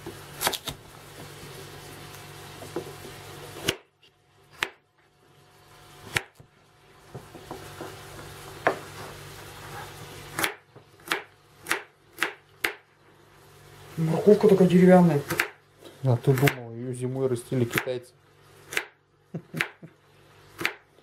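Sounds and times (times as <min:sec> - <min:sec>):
knife chopping on wooden board: 0:04.5 - 0:04.8, 0:10.3 - 0:12.8, 0:15.2 - 0:15.6.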